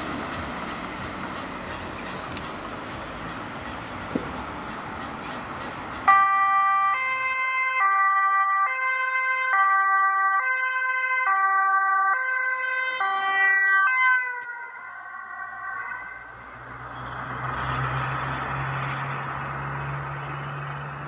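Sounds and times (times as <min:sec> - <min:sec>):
two-tone ambulance siren: 0:06.0 - 0:21.0.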